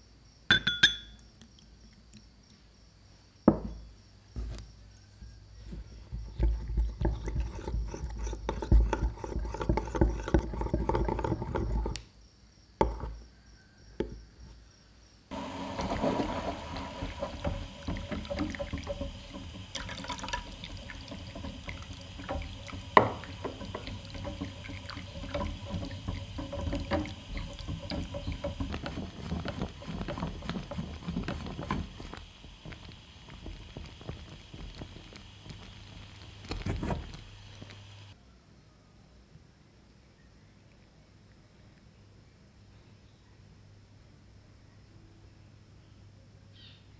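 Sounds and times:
milk sloshing in a saucepan: 0:05.9 - 0:12.0, 0:15.3 - 0:38.2
liquid sloshing with low thumps: 0:06.0 - 0:12.0, 0:15.3 - 0:38.2.

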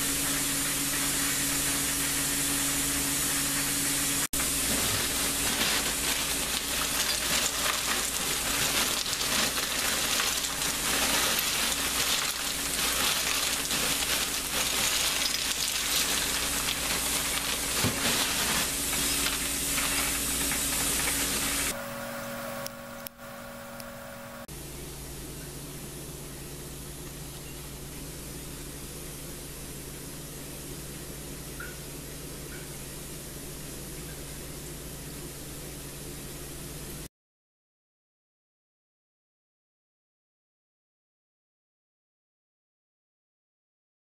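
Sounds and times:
still sizzling hiss: 0:00.0 - 0:24.5
low steady hum: 0:00.0 - 0:37.1.

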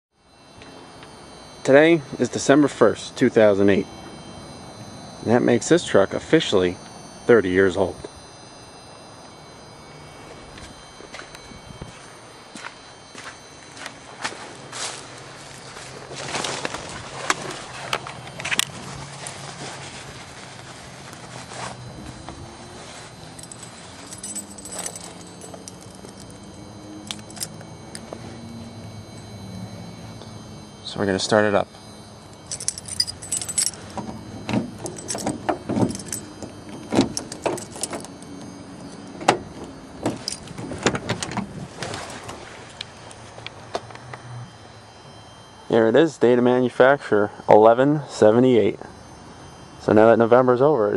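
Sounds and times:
footsteps scuffing on dirt: 0:10.6 - 0:18.0
keys jangling on a ring: 0:21.8 - 0:28.2, 0:31.8 - 0:42.3.

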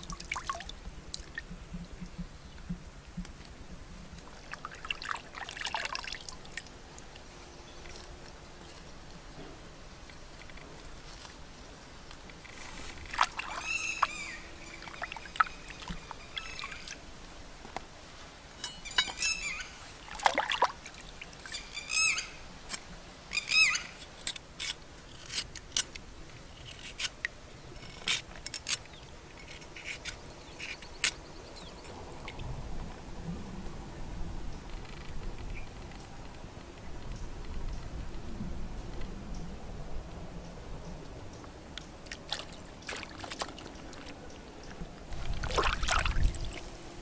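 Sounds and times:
birds chirping: 0:13.3 - 0:17.0, 0:18.6 - 0:20.3.

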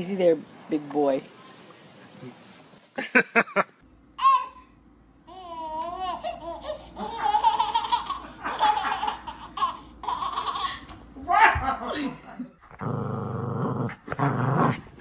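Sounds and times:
baby laughing: 0:05.3 - 0:10.9.

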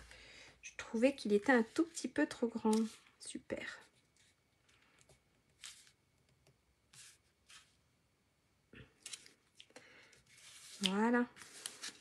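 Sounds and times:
cardstock rustling: 0:10.3 - 0:12.0.

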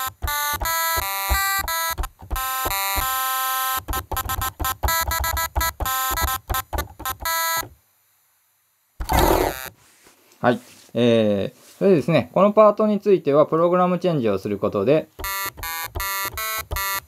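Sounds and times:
chiptune synth notes: 0:09.0 - 0:09.7.

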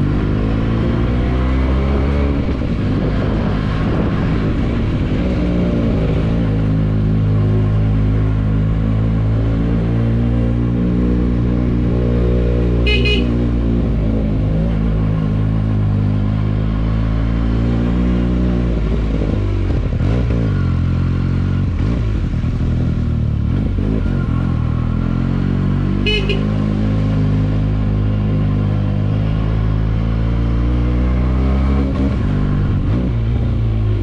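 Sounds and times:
motorcycle horn beeps: 0:12.8 - 0:13.5, 0:26.0 - 0:26.6
motorcycle engine running: 0:12.8 - 0:14.2, 0:26.0 - 0:26.9.

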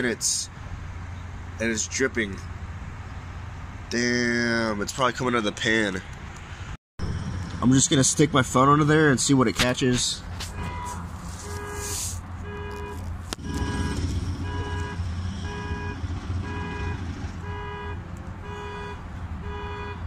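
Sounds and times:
low rumble: 0:07.0 - 0:08.8, 0:13.0 - 0:18.1
electronic alarm beeping: 0:12.5 - 0:17.7.

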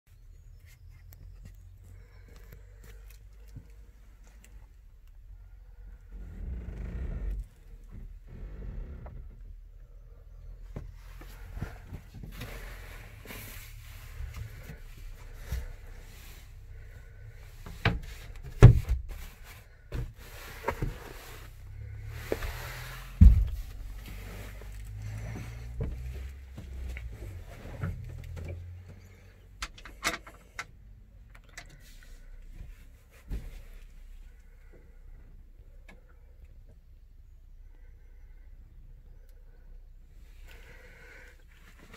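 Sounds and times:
phone handling rumble and rustling: 0:00.4 - 0:09.7, 0:10.4 - 0:34.9
low rumble: 0:21.2 - 0:29.3.

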